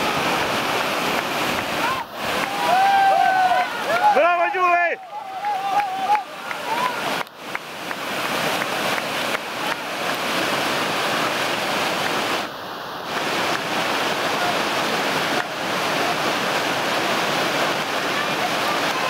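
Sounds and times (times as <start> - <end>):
whitewater rushing: 0.0 - 19.0.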